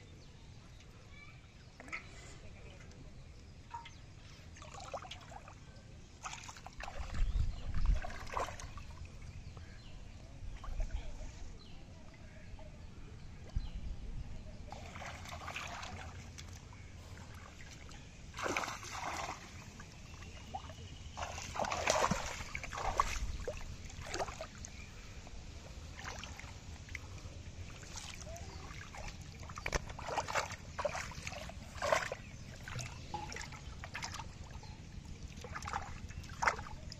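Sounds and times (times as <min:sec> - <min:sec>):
muddy water splashing: 0:03.7 - 0:09.5, 0:14.6 - 0:36.9.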